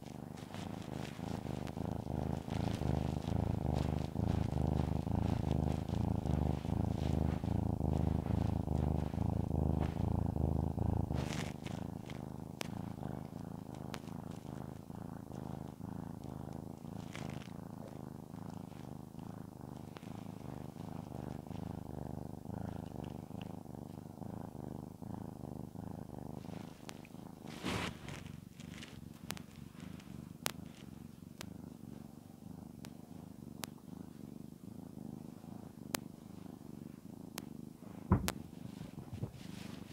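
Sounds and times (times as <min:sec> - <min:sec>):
cat purring: 0:00.0 - 0:39.9.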